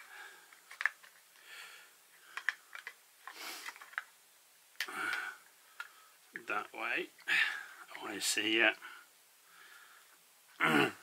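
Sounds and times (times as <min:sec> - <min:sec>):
plastic clicks: 0:00.0 - 0:01.4, 0:02.2 - 0:04.1.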